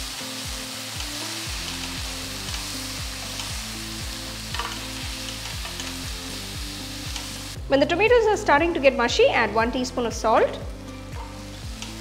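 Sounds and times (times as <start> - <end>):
vegetables sizzling in oil: 0.0 - 7.6, 11.0 - 12.0.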